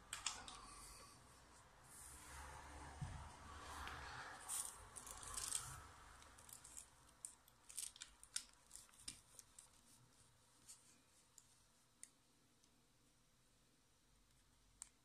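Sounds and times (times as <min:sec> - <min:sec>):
charging cable rustling: 0:03.7 - 0:10.0.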